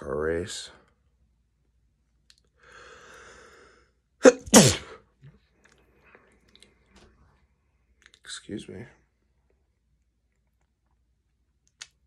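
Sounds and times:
breathy in-breath: 2.6 - 4.0
man sneezing: 4.2 - 5.0.

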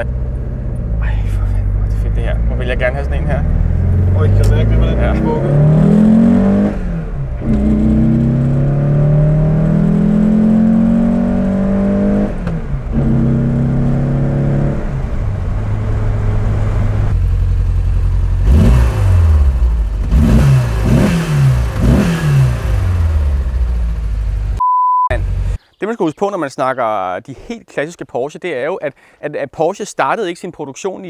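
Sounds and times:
car engine accelerating: 0.0 - 25.6
engine rev blips: 1.8 - 15.2.

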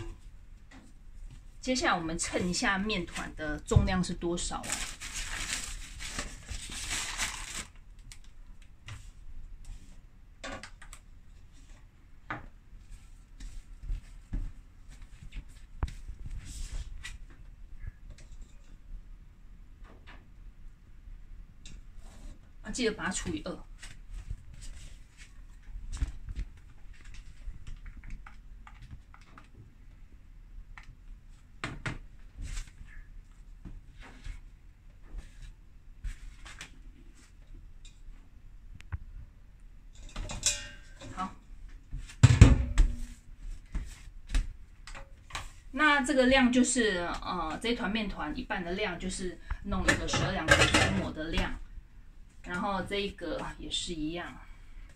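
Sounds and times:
rustling: 4.6 - 8.2.

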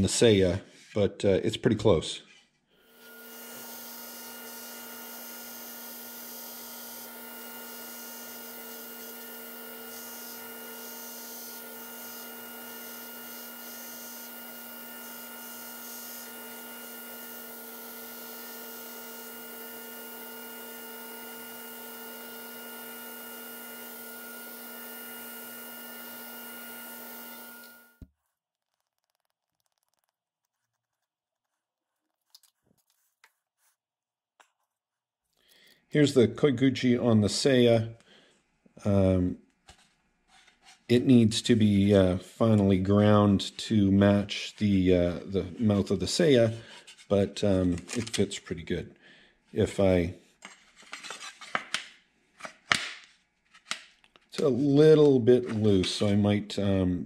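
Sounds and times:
belt grinder grinding: 2.8 - 28.0.

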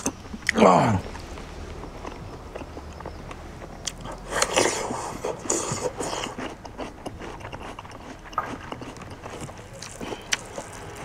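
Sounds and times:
person chewing: 0.0 - 11.0
wet mouth clicks: 2.1 - 10.8.

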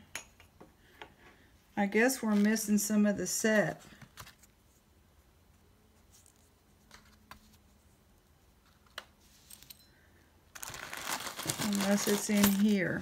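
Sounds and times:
handling clatter and rustling: 10.6 - 13.0.

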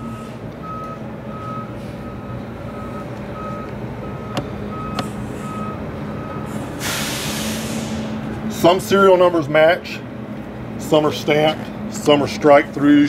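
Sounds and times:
reversing alarm beeping: 0.0 - 7.6.

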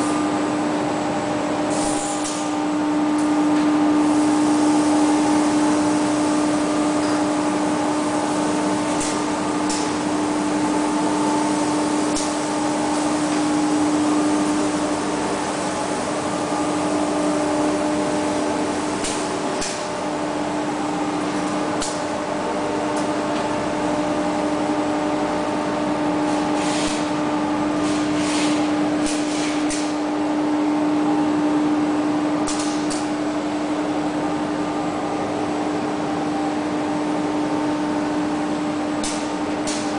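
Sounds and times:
factory noise: 0.0 - 39.9
machine hum with low tone: 0.0 - 39.9.

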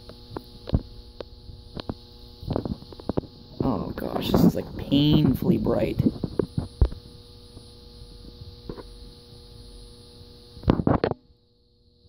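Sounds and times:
streetlight ballast humming: 0.0 - 12.0.

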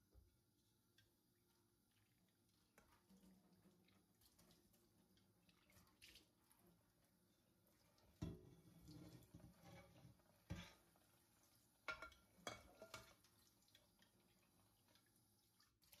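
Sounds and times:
tap water running onto a pan: 2.0 - 16.0
pan knocks and splashes: 8.1 - 10.9, 11.8 - 13.3.

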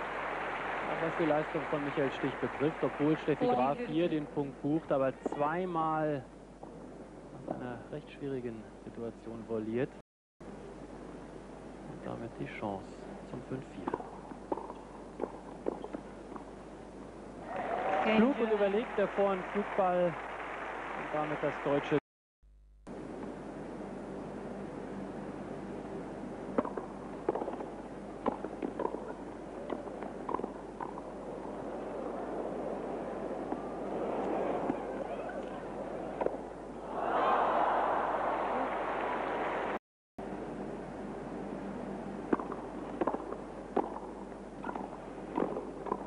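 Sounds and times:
steady background hiss: 0.0 - 22.0, 22.9 - 46.0
tennis rackets striking ball: 13.8 - 16.5, 26.6 - 31.1, 42.3 - 46.0.

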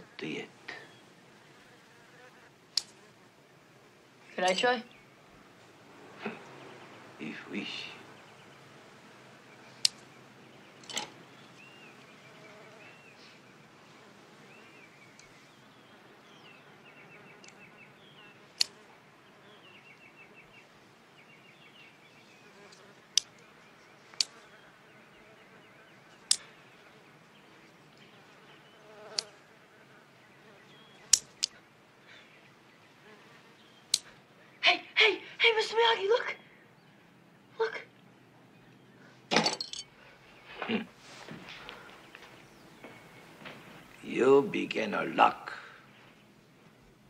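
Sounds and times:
housefly buzzing: 11.5 - 13.2, 22.3 - 23.4, 28.0 - 31.6.

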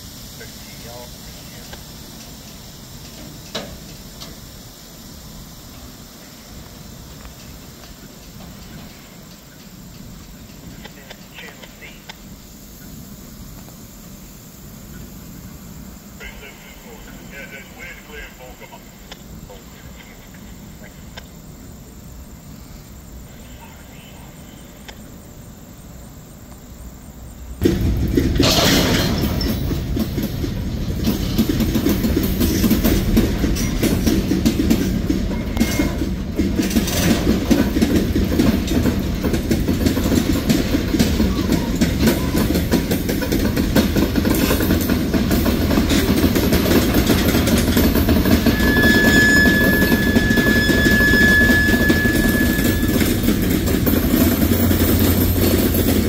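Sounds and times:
train wheels rumbling and clattering: 0.0 - 23.3, 24.3 - 56.0
high squeal: 48.2 - 53.4.

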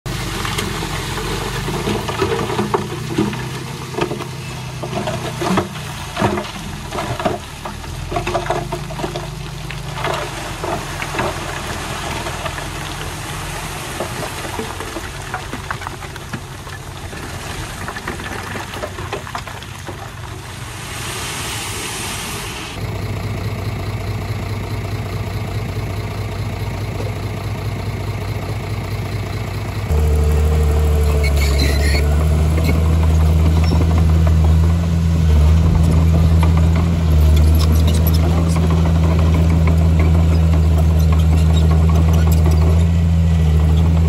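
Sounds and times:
diesel engine running: 0.1 - 44.0
high squeal: 30.9 - 32.8.

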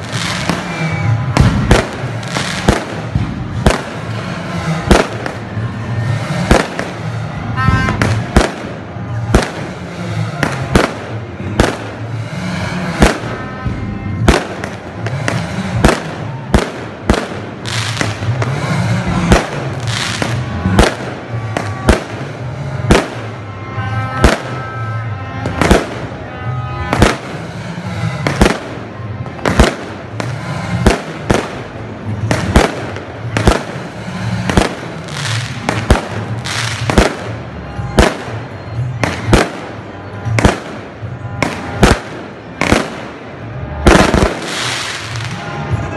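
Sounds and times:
fireworks bangs: 0.0 - 45.9
low rumble: 0.0 - 45.9.

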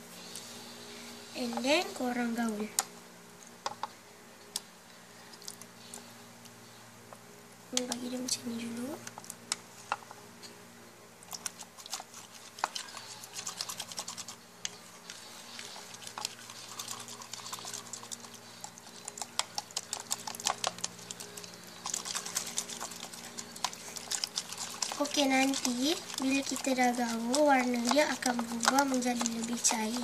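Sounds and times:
spoon stirring slime: 11.2 - 30.0
wet squelches and clicks: 11.2 - 30.0.

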